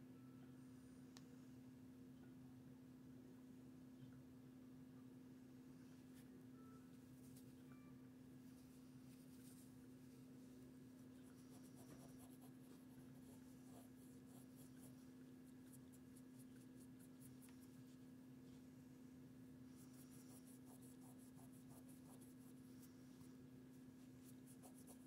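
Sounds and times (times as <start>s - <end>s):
low electrical hum: 0.0s - 25.0s
scratchy rubbing strokes: 11.2s - 18.0s, 24.1s - 25.0s.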